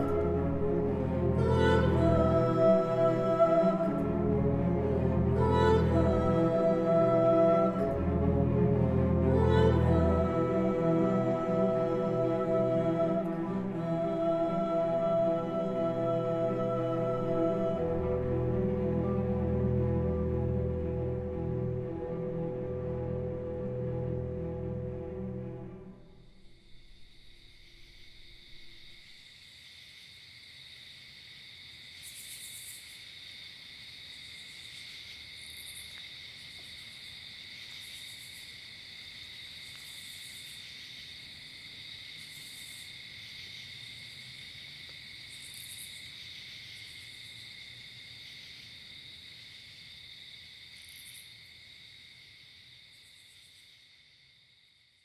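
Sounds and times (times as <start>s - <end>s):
chorus of calling insects: 26.0s - 55.0s.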